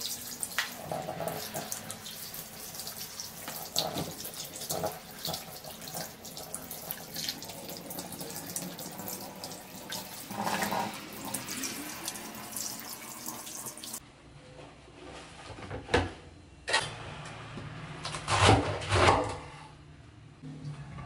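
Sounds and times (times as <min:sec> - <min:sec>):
tap water running into sink: 0:00.0 - 0:14.0.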